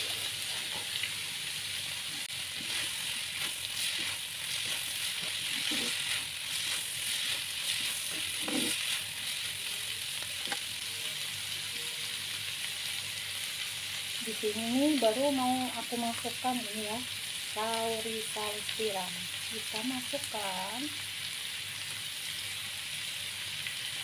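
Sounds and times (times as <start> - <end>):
vegetables sizzling in a pan: 0.0 - 24.0
stirring clicks and scrapes: 2.5 - 9.6.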